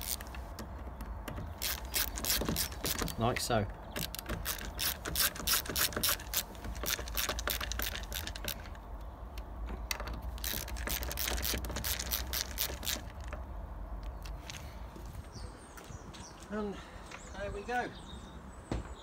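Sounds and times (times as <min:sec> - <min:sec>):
screwdriver ratchet clicking: 0:00.0 - 0:00.4, 0:01.6 - 0:03.2, 0:04.0 - 0:08.8, 0:10.0 - 0:13.4.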